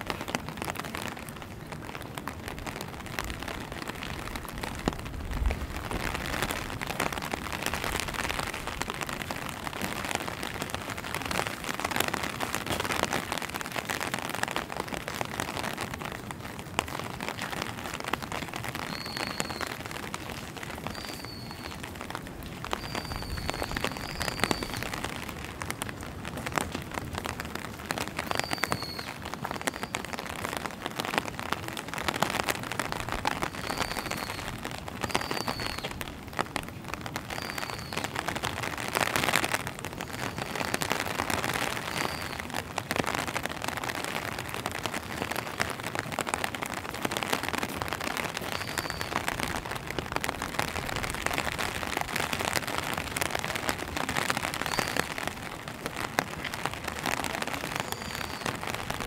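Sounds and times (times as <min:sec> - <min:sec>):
rain tapping on an umbrella: 0:00.0 - 0:59.0.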